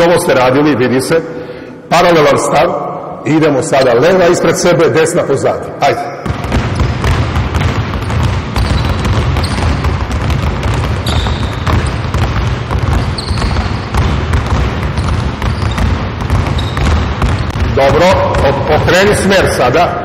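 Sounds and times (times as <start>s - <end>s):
basketballs bouncing on hardwood: 6.2s - 19.2s.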